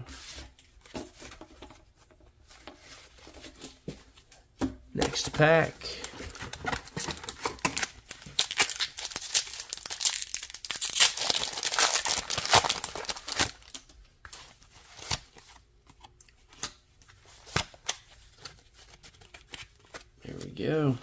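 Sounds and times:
foil wrapper tearing and crinkling: 7.2 - 13.8.

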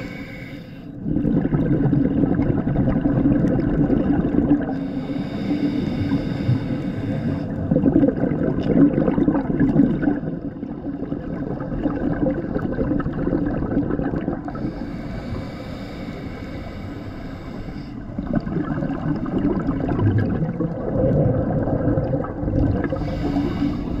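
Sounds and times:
diver breathing through a regulator: 0.0 - 1.2, 4.6 - 7.8, 14.4 - 20.0, 22.7 - 24.0
bubbling exhale: 0.0 - 24.0.

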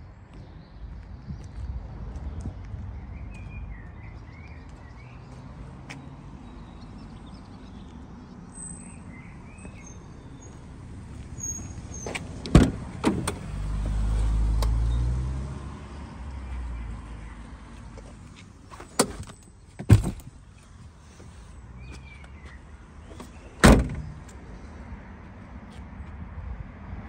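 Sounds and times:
low outdoor background: 0.0 - 27.0
small birds chirping: 2.5 - 10.7, 20.4 - 24.3.

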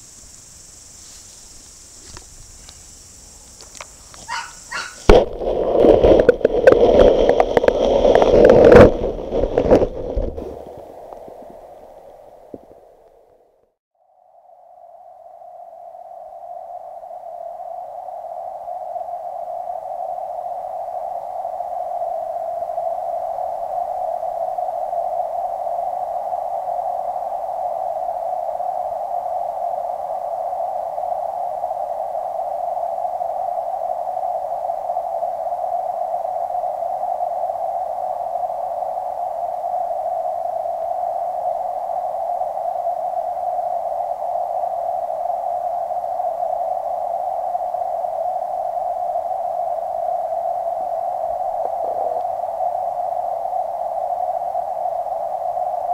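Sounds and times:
muffled underwater water rushing: 4.2 - 13.4, 41.6 - 55.9.

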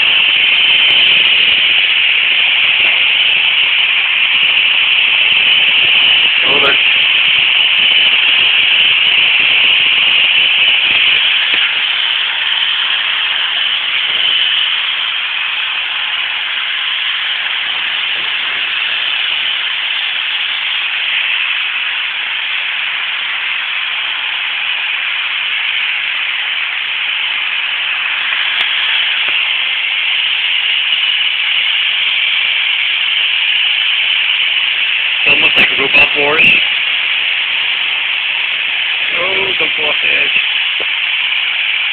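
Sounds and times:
robot vacuums hissing: 28.1 - 40.9.

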